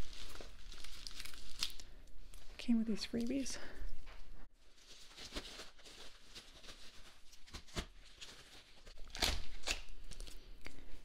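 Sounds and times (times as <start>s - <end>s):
packaging rustling: 0.0s - 2.0s, 4.6s - 10.4s.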